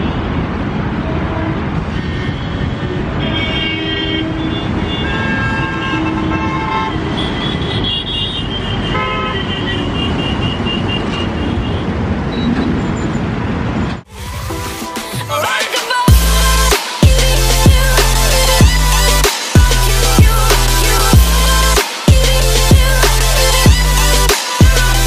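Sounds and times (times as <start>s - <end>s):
highway traffic: 0.0s - 25.0s
vehicle horns tooting: 1.0s - 11.9s.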